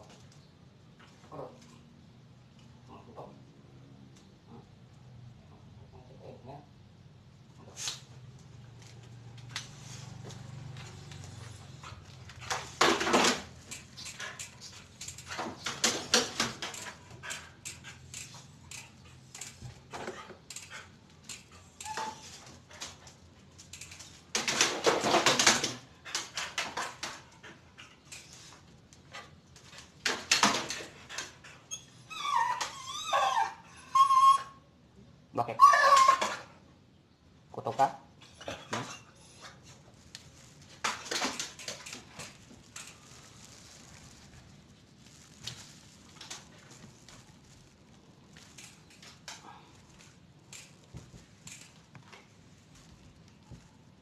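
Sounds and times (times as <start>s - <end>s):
dog scuffling and clattering: 10.3s - 20.9s, 21.8s - 28.5s, 38.4s - 44.3s
dog whining: 21.6s - 22.4s, 31.6s - 34.7s, 35.5s - 36.6s.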